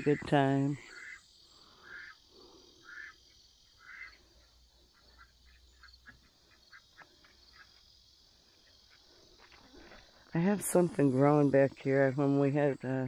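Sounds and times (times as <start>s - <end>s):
poultry calling: 0.0s - 7.8s.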